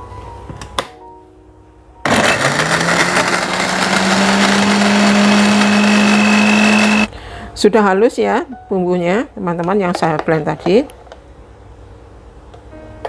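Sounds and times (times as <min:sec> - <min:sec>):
electric blender running: 0:02.0 - 0:07.1.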